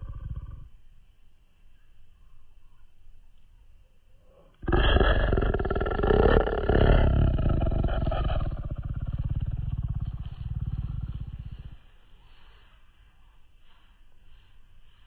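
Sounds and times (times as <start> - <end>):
cat purring loudly: 0.0 - 0.7, 4.6 - 11.8.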